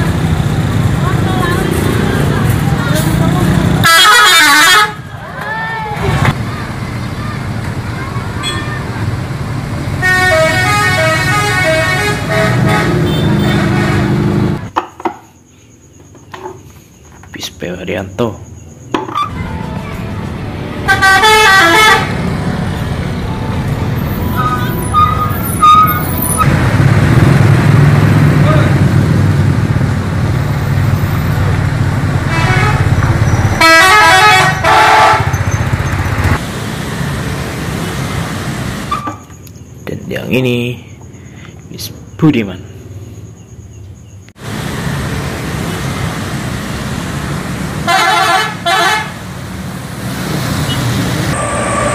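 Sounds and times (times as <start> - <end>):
engine and traffic noise: 0.0 - 51.9
bus multi-tone horn: 3.8 - 5.1, 9.9 - 14.6, 19.2 - 26.4, 32.2 - 35.7, 47.8 - 49.3.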